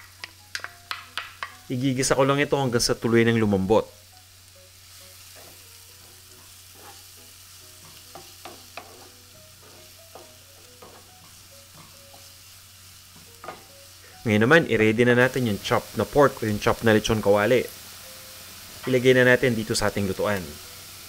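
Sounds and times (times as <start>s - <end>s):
wooden spoon tapping and scraping: 0.0s - 1.6s, 7.8s - 12.3s
onions sizzling in pan: 0.0s - 21.0s.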